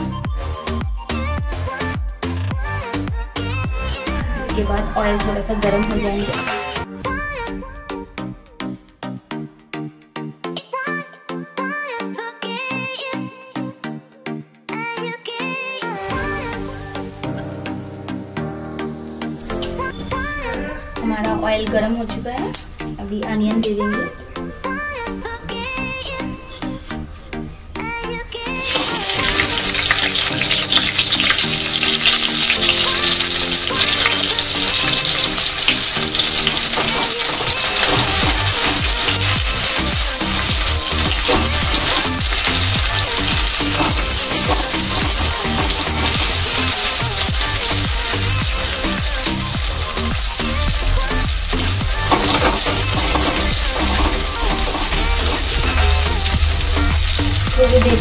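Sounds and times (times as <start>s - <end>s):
background music with beat: 0.0s - 58.0s
onion sizzling in hot oil: 28.5s - 58.0s.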